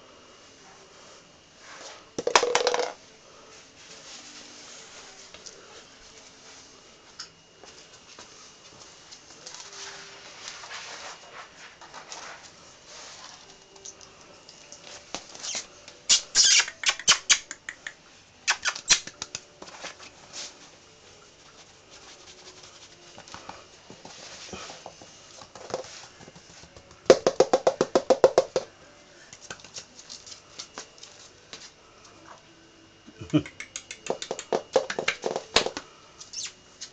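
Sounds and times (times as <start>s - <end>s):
puppy claws tapping on wooden floor: 33.9s - 35.8s.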